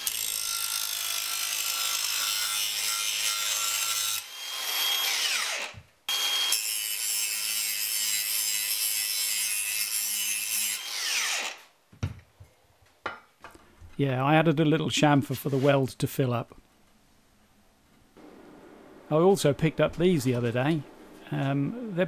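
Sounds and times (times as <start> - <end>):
angle grinder grinding steel: 0.0 - 11.6.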